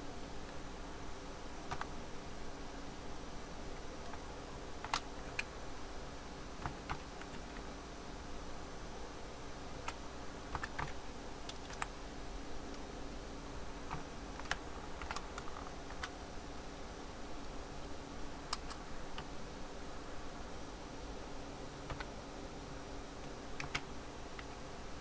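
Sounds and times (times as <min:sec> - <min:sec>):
faint steady hum: 0:00.0 - 0:25.0
computer keyboard typing: 0:01.7 - 0:01.9, 0:04.8 - 0:05.5, 0:06.6 - 0:07.7, 0:09.8 - 0:12.0, 0:13.9 - 0:16.2, 0:18.5 - 0:19.3, 0:21.8 - 0:22.2, 0:23.6 - 0:24.6.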